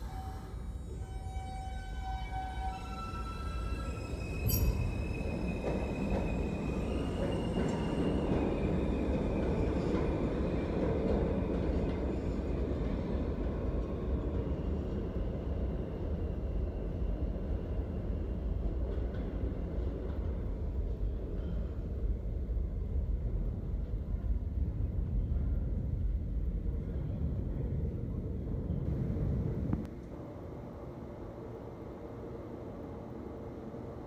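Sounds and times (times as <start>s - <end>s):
high-pitched train whine: 0.0s - 10.1s
subway wheels rumbling on rail: 0.0s - 34.0s
sharp train clack: 4.0s - 10.2s.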